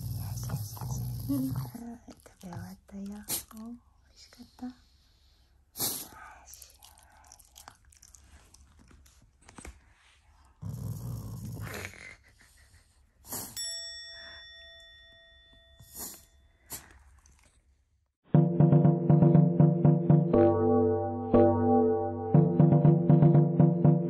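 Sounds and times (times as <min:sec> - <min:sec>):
dog grumbling: 0:00.0 - 0:01.9, 0:10.6 - 0:12.2
bell-like ding: 0:13.6 - 0:16.5.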